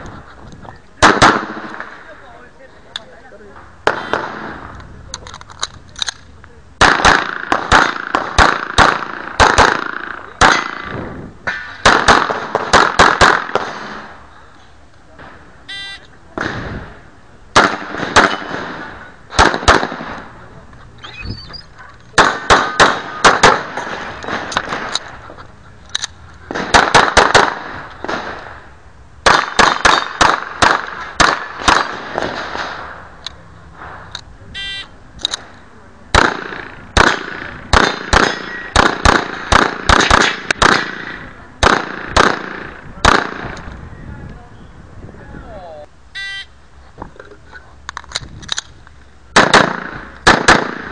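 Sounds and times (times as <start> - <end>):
short electronic beep: 15.7 - 16.1, 34.6 - 34.9, 46.2 - 46.5
handgun shots: 17.6 - 20.2, 36.2 - 43.5.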